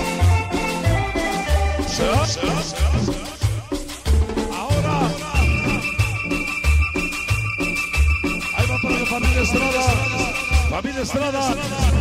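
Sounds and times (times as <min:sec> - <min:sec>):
loud dance music over sound system: 0:00.0 - 0:12.0.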